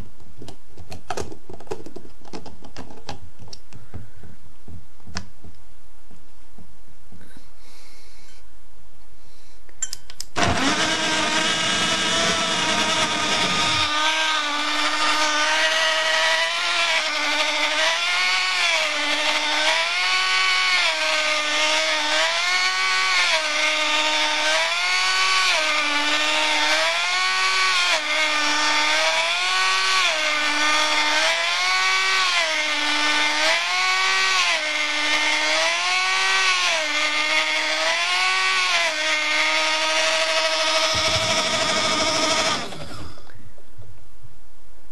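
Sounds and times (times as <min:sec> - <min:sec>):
portable blender motor whirring: 0:10.4 - 0:43.4.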